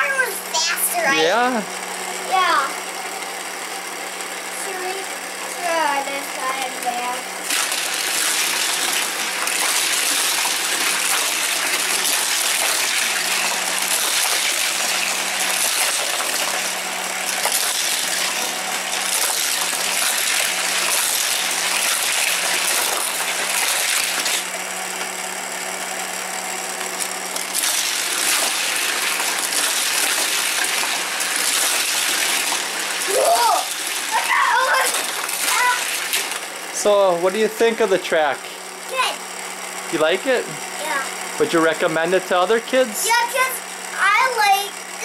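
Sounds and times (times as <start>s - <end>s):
toy track booster whirring: 0.0s - 45.0s
toy cars rattling on plastic track: 6.8s - 16.7s, 27.5s - 36.4s.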